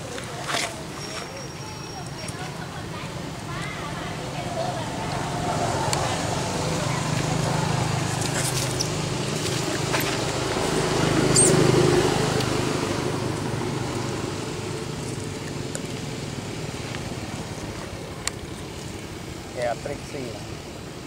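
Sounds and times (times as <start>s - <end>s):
vehicle engine passing: 4.0s - 18.8s.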